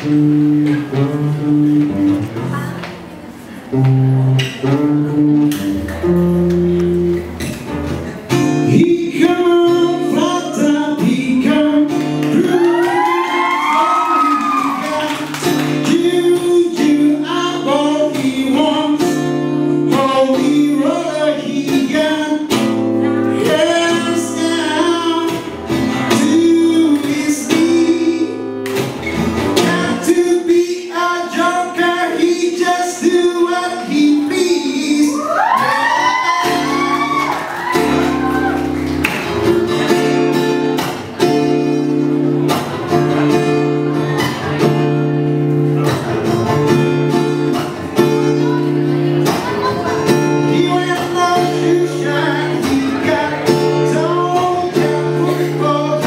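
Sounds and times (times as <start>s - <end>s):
acoustic guitar: 0.0s - 56.0s
man singing: 8.3s - 28.7s, 29.5s - 37.2s, 49.2s - 56.0s.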